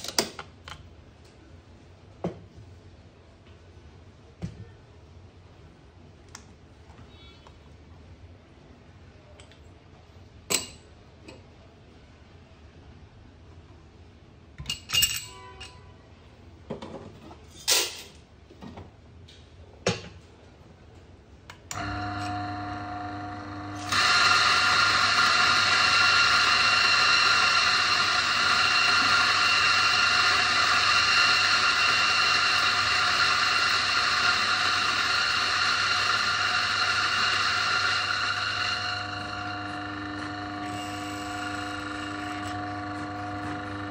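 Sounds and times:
coffee grinder motor humming: 21.7s - 43.9s
coffee grinder grinding beans: 21.8s - 43.9s.

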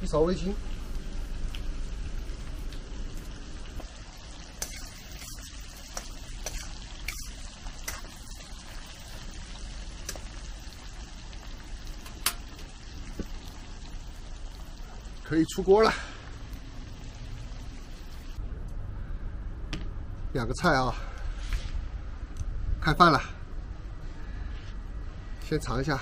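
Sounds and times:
food sizzling in a wok: 0.0s - 18.4s
metal spatula scraping a pan: 6.4s - 8.2s.

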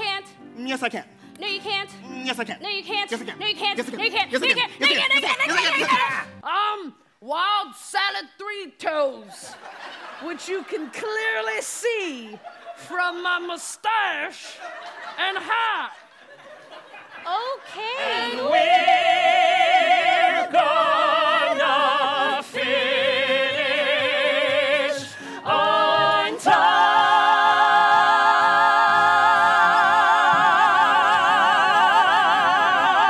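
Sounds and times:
cast singing in harmony: 18.2s - 33.0s.

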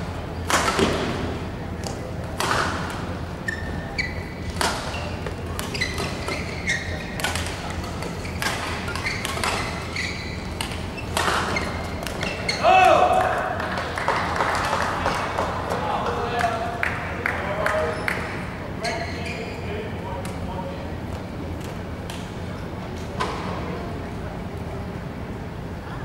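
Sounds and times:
shoes squeaking on court: 2.8s - 12.7s, 18.8s - 19.8s
racket striking shuttlecock: 7.1s - 9.8s, 10.4s - 12.6s.

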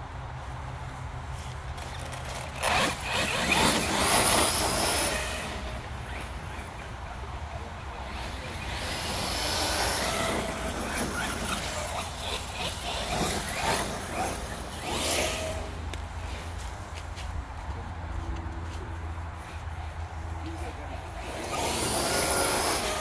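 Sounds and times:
electric motor whine: 8.1s - 16.5s, 21.2s - 23.0s.

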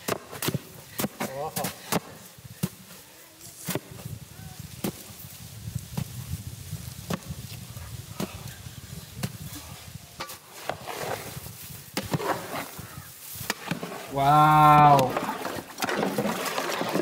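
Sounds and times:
stick scraping ice in metal pot: 10.2s - 11.4s, 12.0s - 12.8s, 13.4s - 17.0s.

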